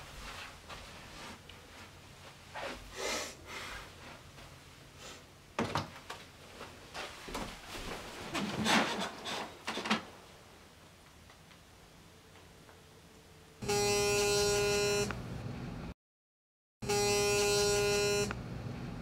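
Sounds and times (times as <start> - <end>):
bedding and pillow rustling: 6.1 - 10.3.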